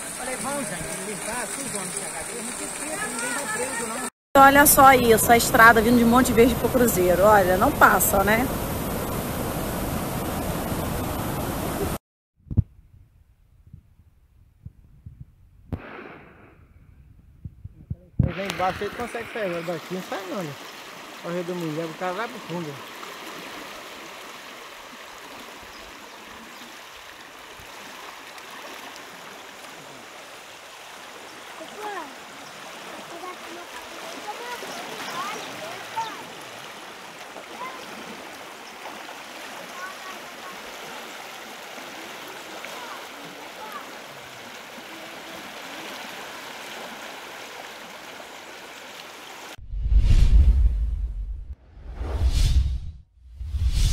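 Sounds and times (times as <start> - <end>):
floodwater rushing in a creek: 0.0 - 12.0, 18.3 - 49.6
whoosh over deep bass hit: 15.7 - 17.0, 49.6 - 53.9.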